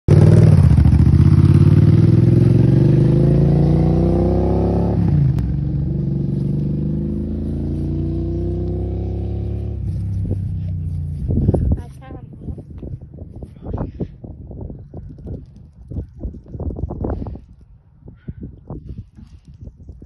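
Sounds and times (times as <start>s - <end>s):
motorcycle engine accelerating: 0.1s - 12.0s.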